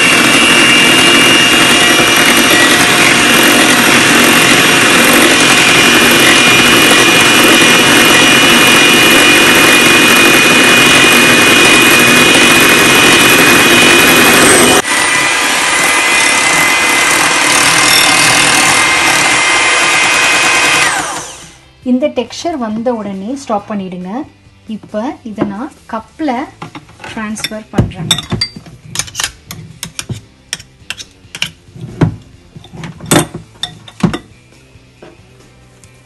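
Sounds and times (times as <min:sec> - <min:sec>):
electric hand mixer whirring: 0:00.0 - 0:21.7.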